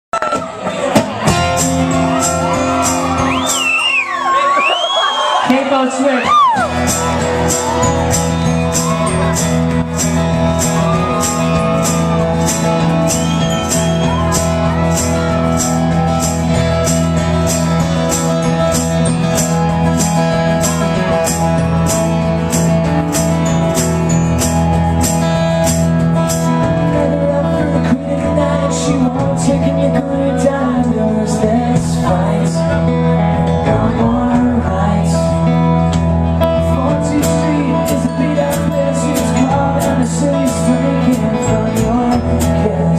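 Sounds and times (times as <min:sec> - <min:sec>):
acoustic guitar strumming: 0:00.8 - 0:04.3, 0:06.6 - 0:42.9
tambourine beat: 0:06.6 - 0:26.7
man singing: 0:26.6 - 0:42.9.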